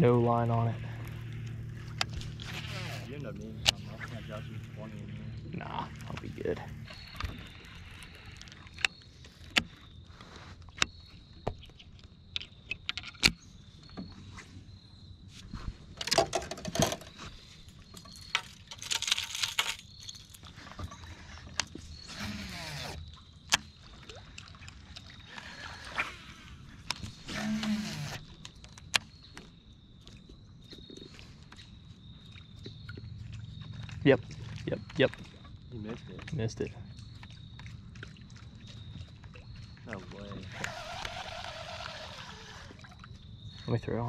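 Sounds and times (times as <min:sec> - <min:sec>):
fishing tackle clicks and knocks: 0:10.7 - 0:14.1, 0:16.0 - 0:17.2, 0:17.9 - 0:21.8.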